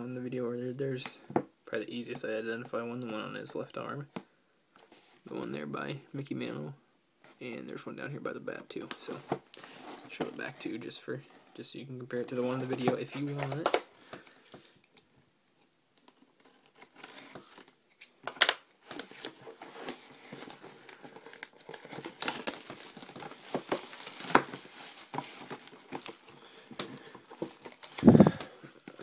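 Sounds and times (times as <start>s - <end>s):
plastic wrap tearing and crinkling: 16.4s - 29.0s.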